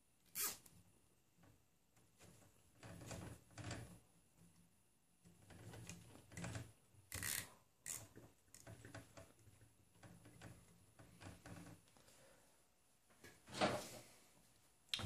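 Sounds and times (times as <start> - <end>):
short rasps: 0.3 - 0.6
zip tie pulled tight: 0.3 - 0.7.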